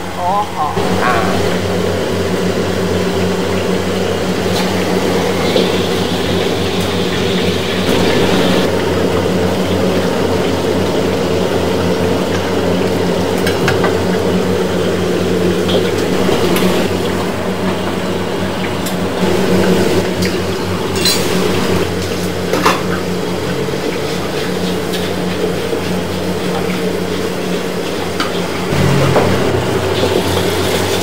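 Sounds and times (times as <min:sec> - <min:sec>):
food deep-frying in hot oil: 0:00.6 - 0:31.0.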